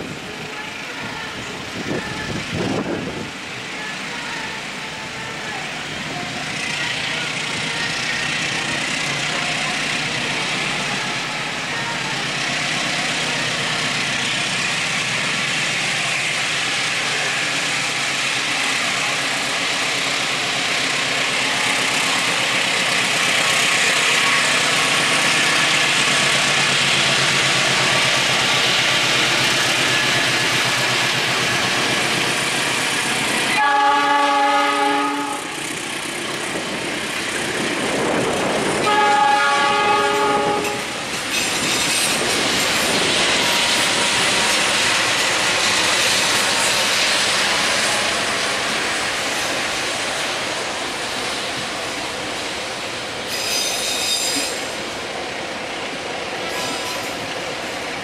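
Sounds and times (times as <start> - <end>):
train wheels rushing on rail: 0.0 - 58.0
train horn chord: 33.6 - 35.6, 38.8 - 41.0.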